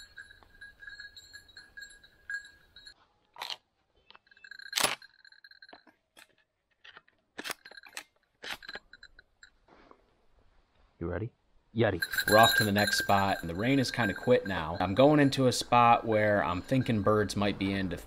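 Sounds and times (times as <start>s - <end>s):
small bell jingling: 0.0s - 3.0s, 4.2s - 5.9s, 12.0s - 18.0s.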